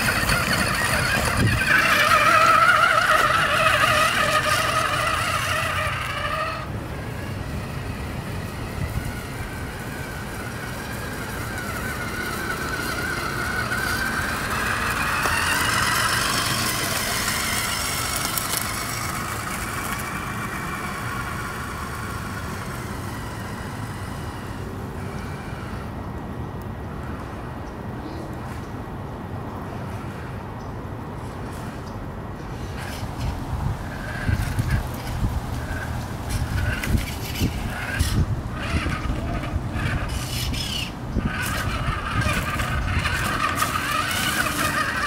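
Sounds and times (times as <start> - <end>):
electric motor and gears whining: 0.0 - 27.6, 31.2 - 45.0.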